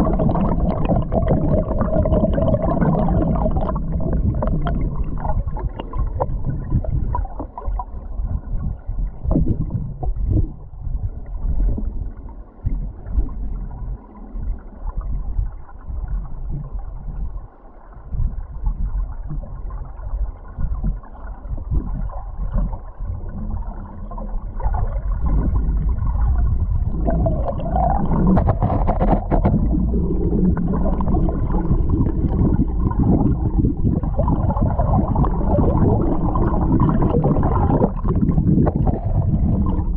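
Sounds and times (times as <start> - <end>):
underwater knocks: 0.0 - 12.0, 20.6 - 39.9
underwater river rushing: 0.0 - 39.9.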